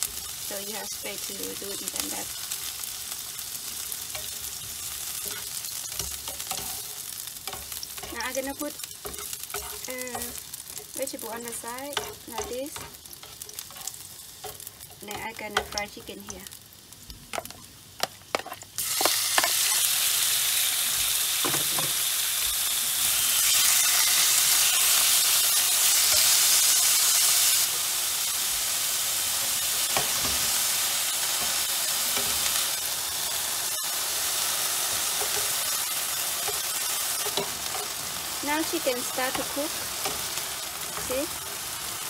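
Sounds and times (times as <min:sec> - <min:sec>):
chicken sizzling in hot oil: 0:00.0 - 0:42.0
spatula tapping and scraping: 0:05.2 - 0:16.4, 0:17.3 - 0:19.6.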